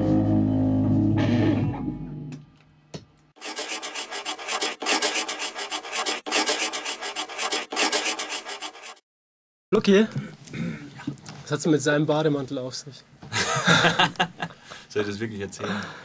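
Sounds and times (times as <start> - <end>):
pencil scribbling on paper: 3.4 - 9.0.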